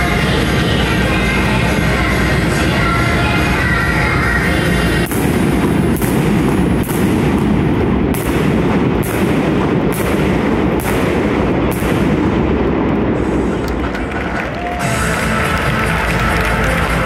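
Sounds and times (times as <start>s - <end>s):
fireworks bangs echoing: 4.9s - 14.5s.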